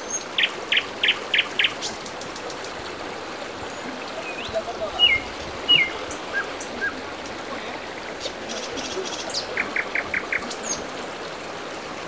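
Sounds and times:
river rushing over rocks: 0.0s - 12.0s
birds chirping: 3.7s - 10.8s.

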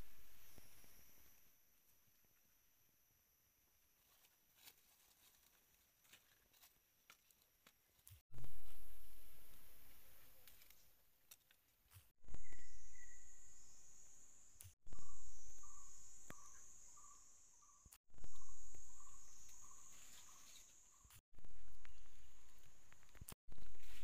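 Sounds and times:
insects chirring: 12.3s - 23.3s.

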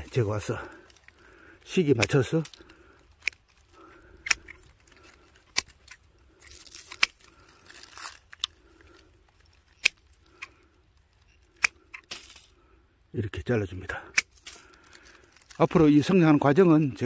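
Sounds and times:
pruning shears snipping twigs: 0.0s - 8.6s, 9.4s - 10.6s, 11.2s - 12.5s, 14.1s - 15.8s
branches rustling: 0.0s - 12.7s, 13.8s - 17.0s.

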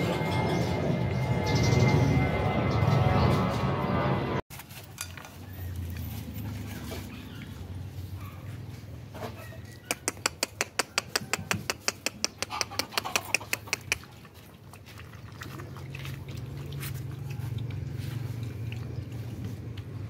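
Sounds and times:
puppies eating with smacking clicks: 9.6s - 20.0s.

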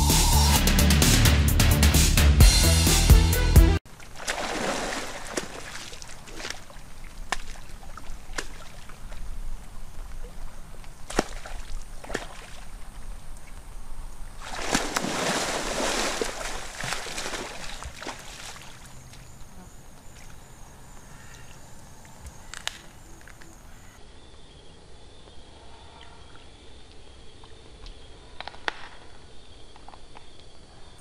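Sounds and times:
water splashing: 3.9s - 13.6s, 14.4s - 19.3s.

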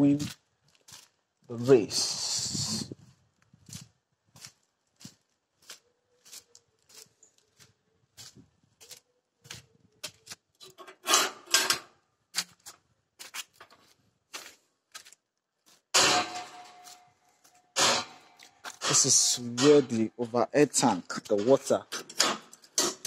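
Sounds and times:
scuffing and rustling: 0.0s - 2.2s, 2.8s - 10.6s, 12.4s - 15.9s
footsteps walking slowly: 0.0s - 10.8s, 12.3s - 15.9s, 16.5s - 21.8s.

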